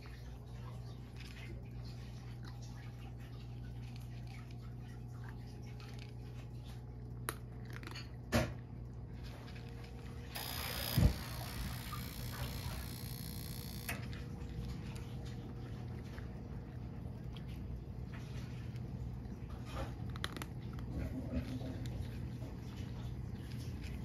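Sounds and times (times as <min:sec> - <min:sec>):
steady low hum: 0:00.0 - 0:24.0
cat crunching dry kibble: 0:13.9 - 0:24.0.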